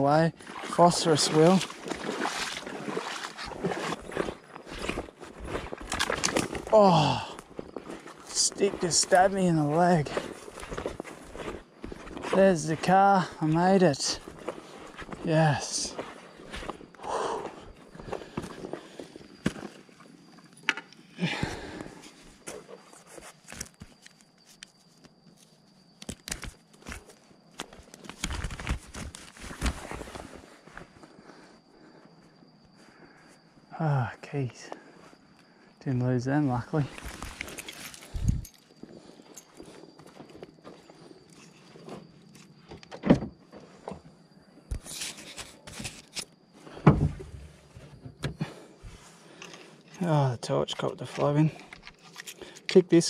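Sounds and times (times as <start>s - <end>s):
footsteps: 0.5s - 18.8s.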